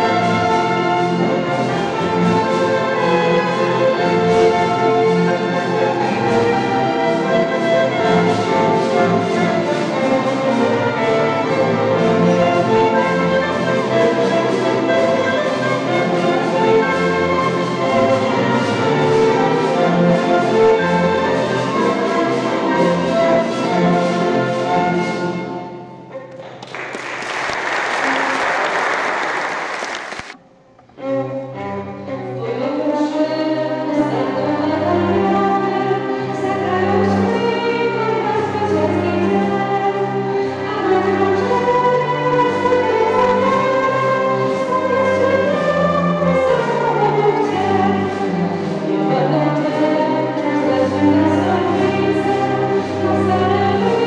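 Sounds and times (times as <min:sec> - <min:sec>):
bowed strings: 0:00.0 - 0:26.7, 0:30.5 - 0:54.0
applause: 0:26.3 - 0:30.4.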